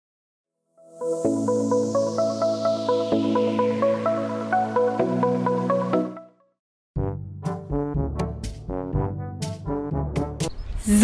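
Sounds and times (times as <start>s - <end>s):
music with a steady beat: 7.0s - 10.5s.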